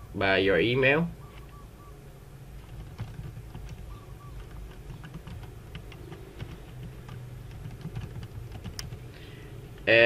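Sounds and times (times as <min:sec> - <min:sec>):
steady low hum: 0:00.0 - 0:10.0
typing on keyboard: 0:02.6 - 0:09.1.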